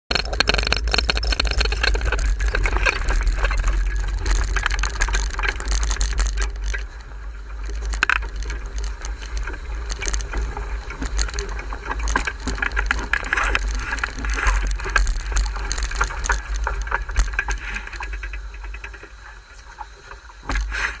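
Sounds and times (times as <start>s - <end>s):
boat knocks and rattles: 0.1s - 7.0s.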